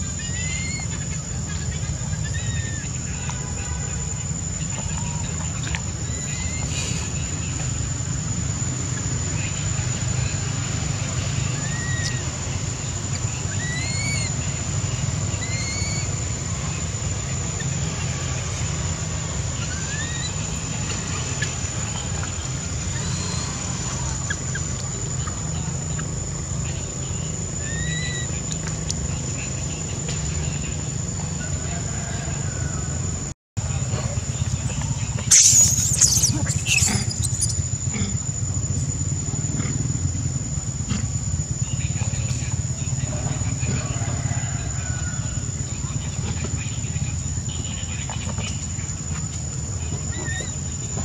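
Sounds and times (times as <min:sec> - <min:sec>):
high-pitched whine: 0:00.0 - 0:51.0
baby monkey squeaking: 0:00.1 - 0:02.9, 0:06.0 - 0:06.7, 0:11.6 - 0:12.2, 0:13.5 - 0:14.4, 0:15.3 - 0:16.2, 0:19.6 - 0:20.5, 0:21.4 - 0:24.8, 0:27.6 - 0:28.4, 0:35.3 - 0:37.8, 0:50.1 - 0:50.6.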